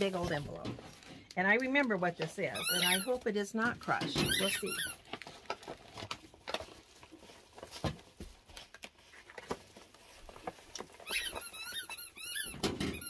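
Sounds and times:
squeaky toy squeaking: 2.5s - 3.1s, 4.2s - 5.0s, 11.0s - 13.0s.

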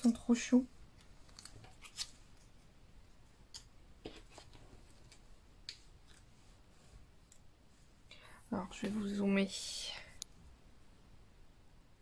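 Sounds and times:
paper pieces rustling and ticking: 0.0s - 2.5s.

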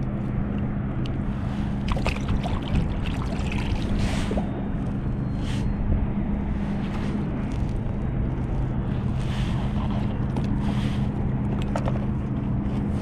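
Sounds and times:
steady low hum: 0.0s - 13.0s
wind buffeting microphone: 0.0s - 13.0s
water splashing against kayak: 1.8s - 4.4s.

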